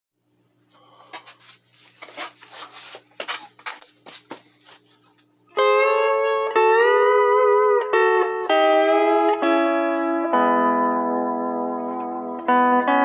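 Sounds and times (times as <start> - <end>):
faint amplifier hum: 0.2 - 13.0
lap steel guitar chord ringing: 5.5 - 13.0.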